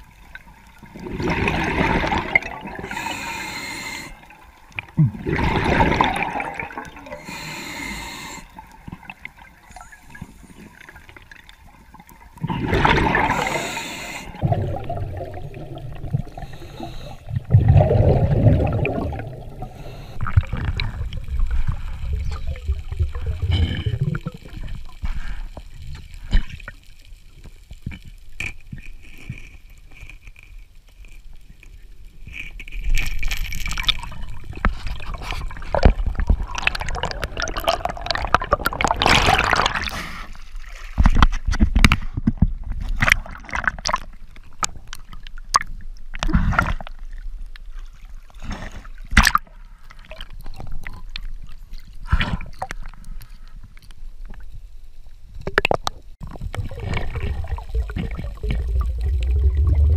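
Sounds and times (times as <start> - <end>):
underwater gurgling and bubbling: 0.0 - 25.4, 33.7 - 40.2, 55.4 - 59.9.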